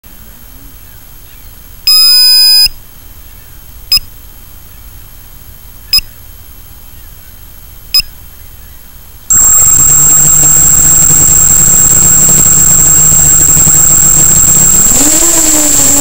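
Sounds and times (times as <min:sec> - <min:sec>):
short beeps: 0:01.9 - 0:02.7, 0:09.3 - 0:16.0
sliding electronic beeper tones: 0:09.3 - 0:16.0.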